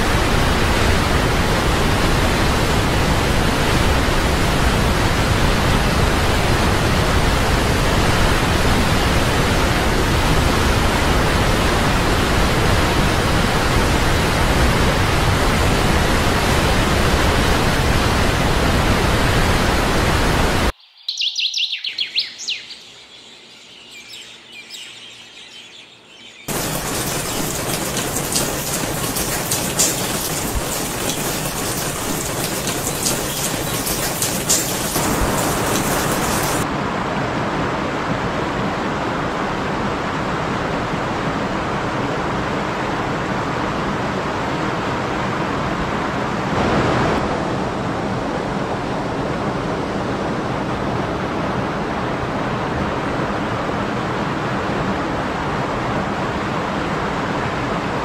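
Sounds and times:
bird chirps: 0:20.8 - 0:28.5
splashing water: 0:26.5 - 0:36.6
waterfall rushing: 0:26.5 - 0:36.6.

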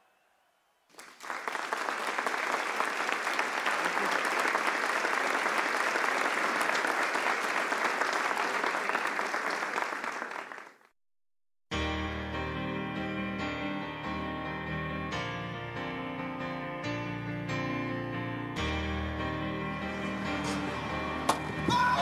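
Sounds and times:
audience applauding: 0:00.9 - 0:10.9, 0:19.9 - 0:22.0.

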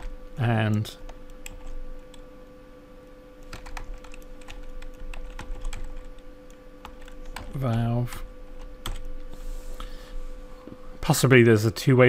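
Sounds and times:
keyboard typing: 0:00.0 - 0:02.2, 0:03.4 - 0:08.0, 0:08.6 - 0:09.2
faint steady hum: 0:00.0 - 0:12.0.

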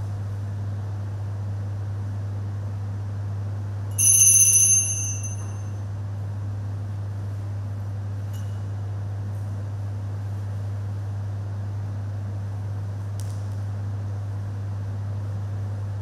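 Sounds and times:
steady low hum: 0:00.0 - 0:16.0
altar bells jingling: 0:04.0 - 0:05.6.

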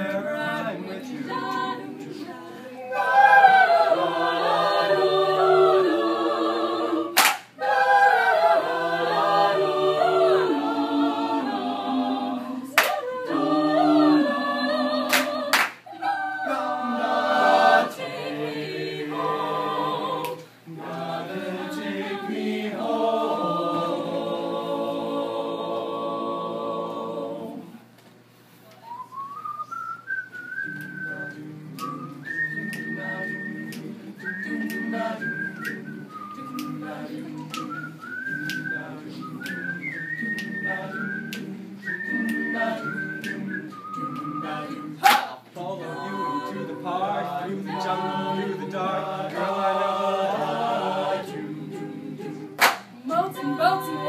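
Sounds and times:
group singing in harmony: 0:00.0 - 0:27.9, 0:30.1 - 0:54.0
whistled melody: 0:28.7 - 0:45.0.

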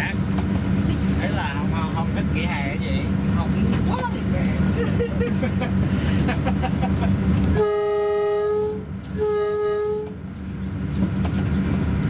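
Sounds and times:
train running rumble: 0:00.0 - 0:12.0
locomotive horn blasts: 0:07.5 - 0:10.2.

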